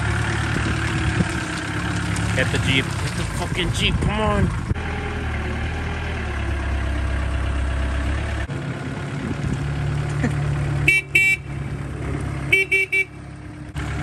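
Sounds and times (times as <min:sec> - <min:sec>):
forklift engine running: 0:00.0 - 0:14.0
short horn toots: 0:10.9 - 0:11.5, 0:12.5 - 0:13.2.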